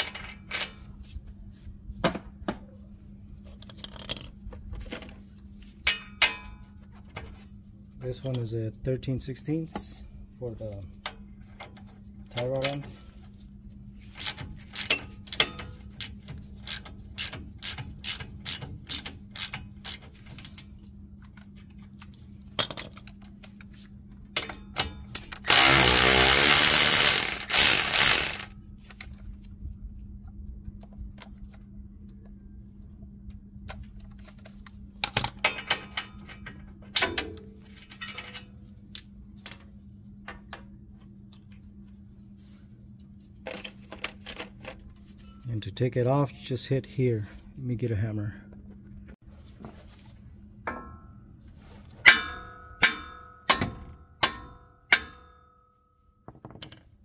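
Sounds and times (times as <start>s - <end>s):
hand ratchet clicking: 14.2s - 20.0s, 25.4s - 28.5s
electric ratchet running: 25.4s - 28.5s.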